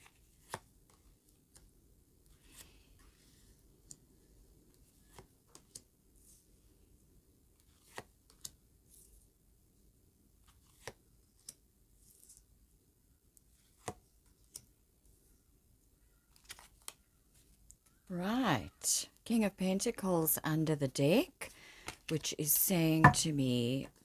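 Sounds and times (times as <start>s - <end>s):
cards sliding on cards: 2.3s - 3.5s
cards tapping on tabletop: 23.0s - 23.3s.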